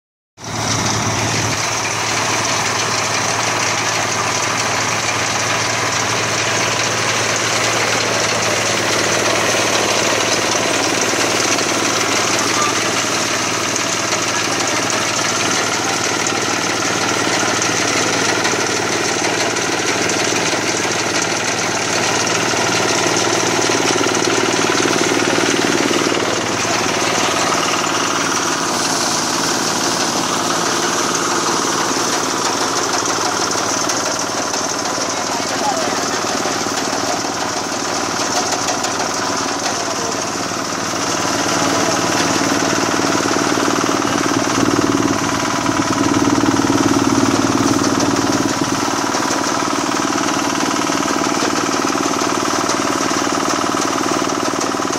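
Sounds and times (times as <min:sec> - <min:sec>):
combine harvester engine droning: 0:00.4 - 0:54.9.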